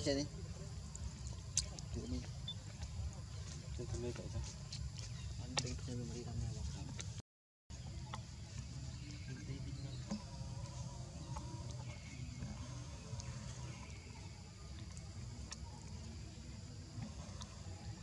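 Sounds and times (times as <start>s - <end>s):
insects humming: 8.4s - 18.0s.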